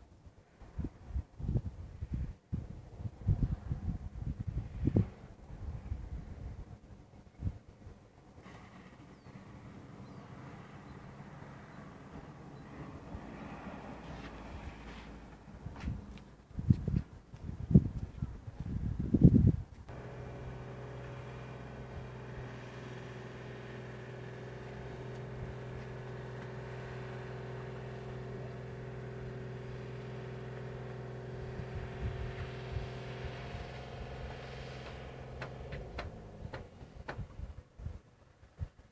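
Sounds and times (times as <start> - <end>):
engine humming: 8.0 - 16.6, 19.8 - 38.0.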